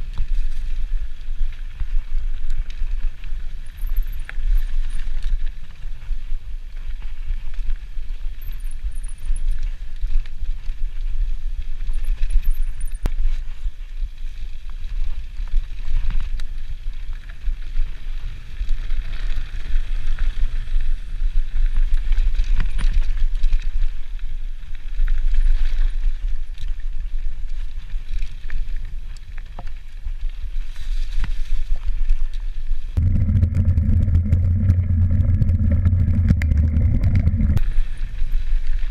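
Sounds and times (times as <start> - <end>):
wind and vibration rumble: 0.0 - 27.3, 32.7 - 38.9
bike rattles and clicks: 0.0 - 29.9, 32.1 - 38.9
steady low hum: 33.0 - 37.6.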